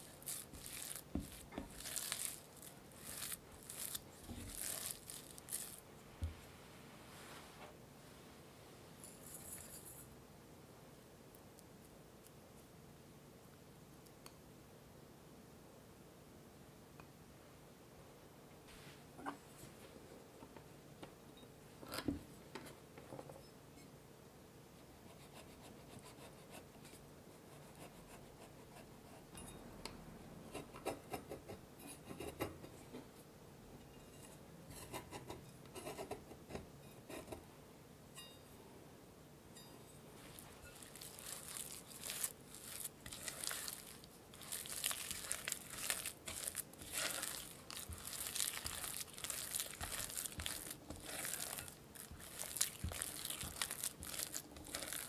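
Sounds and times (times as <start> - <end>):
spatula scraping in glass bowl: 0.0 - 5.8, 39.6 - 55.0.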